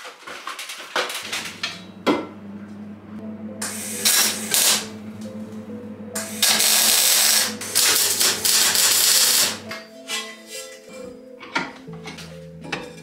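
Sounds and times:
welding arc sizzling crackle: 0:01.1 - 0:02.8, 0:03.6 - 0:05.2, 0:06.2 - 0:09.7
steady low hum: 0:01.2 - 0:09.7.

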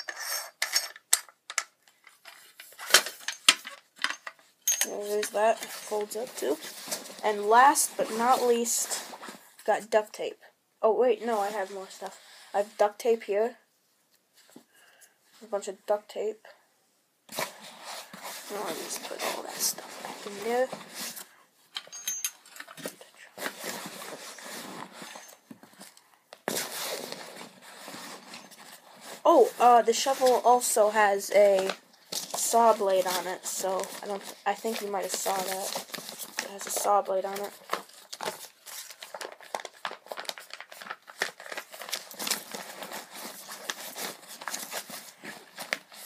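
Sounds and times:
fabric rustling and scraping: 0:04.9 - 0:09.7, 0:17.3 - 0:21.4, 0:22.4 - 0:46.0.

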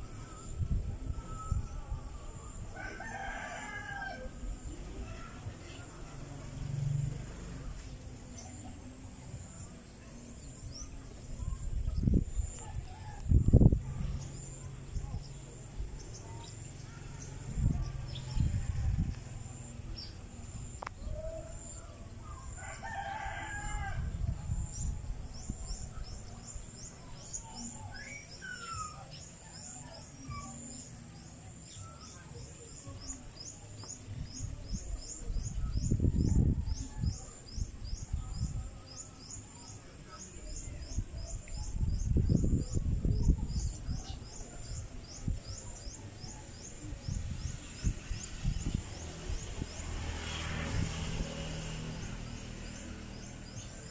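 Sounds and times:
rooster crowing: 0:02.8 - 0:04.3, 0:22.5 - 0:24.1.

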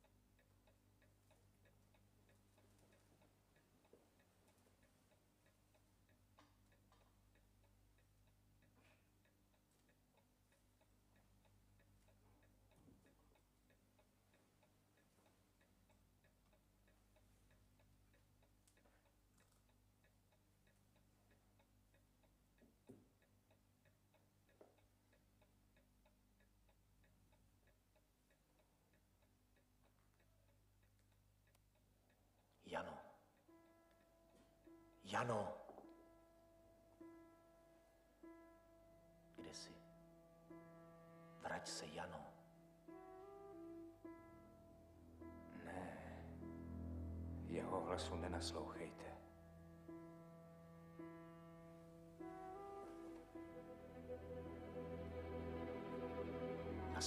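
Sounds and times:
faint regular ticking: 0:00.0 - 0:57.0
low steady hum: 0:38.3 - 0:57.0.

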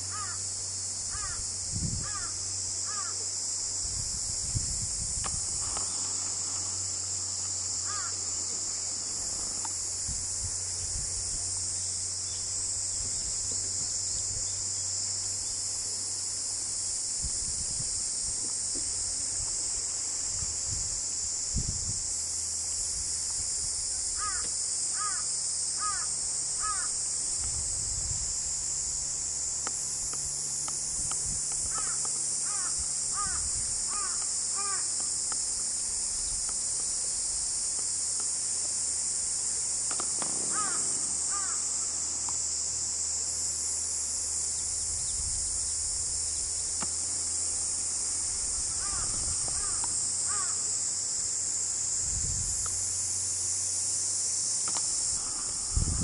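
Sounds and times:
insects droning: 0:00.0 - 0:56.0
crow cawing: 0:00.1 - 0:00.4, 0:01.1 - 0:01.4, 0:02.1 - 0:02.3, 0:02.9 - 0:03.2, 0:07.8 - 0:08.2, 0:24.2 - 0:24.4, 0:25.0 - 0:25.2, 0:25.8 - 0:26.9, 0:31.7 - 0:34.9, 0:40.5 - 0:41.6, 0:48.8 - 0:50.6.

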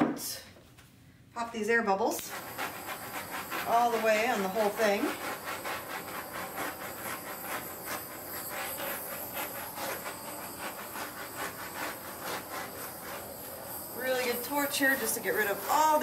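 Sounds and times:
torch flame hissing: 0:02.1 - 0:16.0.

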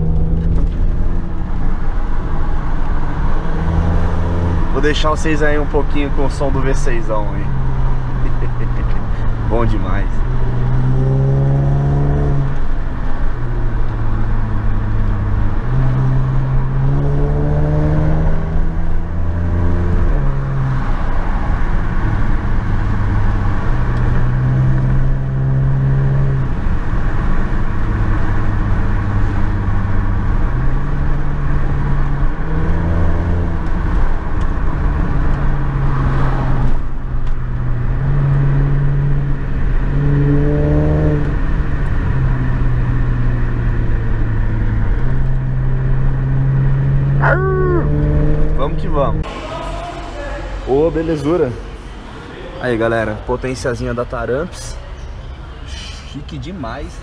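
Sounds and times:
car engine accelerating: 0:00.0 - 0:54.4
road noise: 0:00.0 - 0:57.0.

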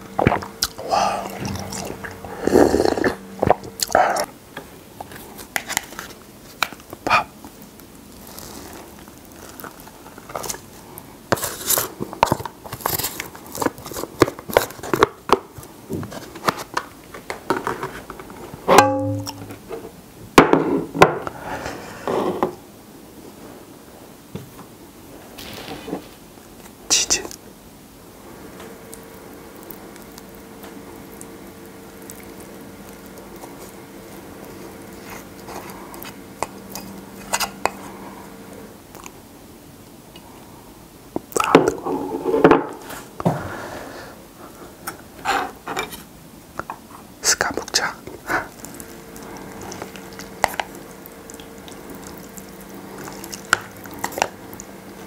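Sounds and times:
close eating and chewing: 0:00.0 - 0:04.4, 0:28.6 - 0:39.2, 0:44.4 - 0:55.0.

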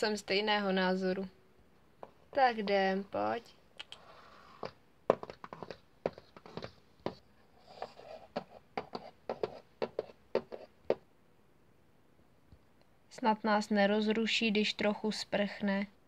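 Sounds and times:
plastic toys tapping on wooden floor: 0:04.6 - 0:07.2.

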